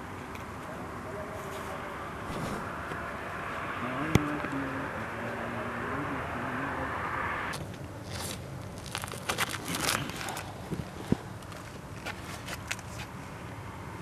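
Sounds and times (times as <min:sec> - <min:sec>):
vehicle engine hum: 0:00.0 - 0:14.0
crunching and crackling rustles: 0:07.5 - 0:13.5.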